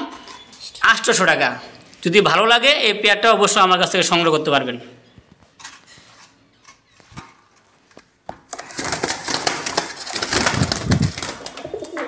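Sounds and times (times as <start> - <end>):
pigeons flapping in wire cage: 8.5 - 12.0.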